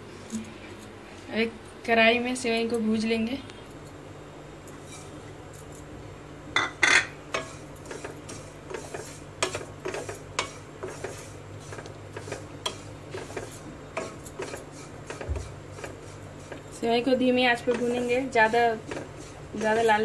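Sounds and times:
wooden spatula scraping a pan: 4.8 - 5.2, 7.3 - 20.0.

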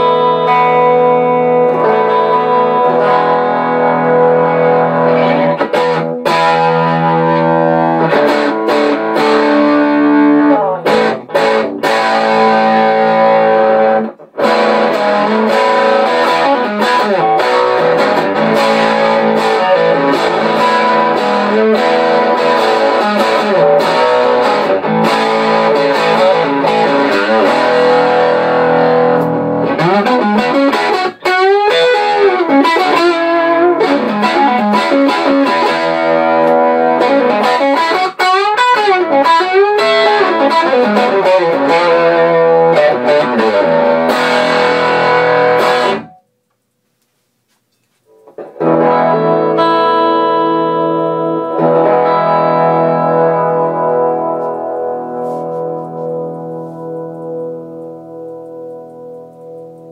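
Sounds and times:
electric guitar through amp: 0.0 - 46.3, 48.1 - 59.9.

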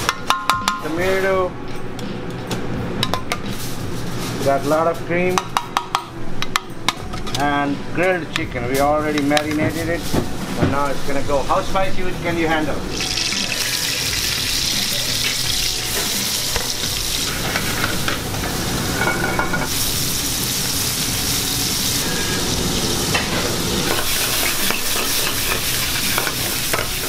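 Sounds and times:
vegetables sizzling in oil: 12.9 - 27.0
metal utensil stirring a pan: 23.9 - 27.0.

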